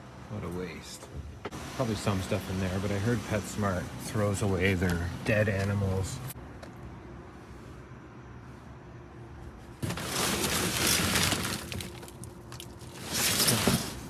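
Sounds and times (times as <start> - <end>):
debris crunching and rattling: 9.8 - 14.0.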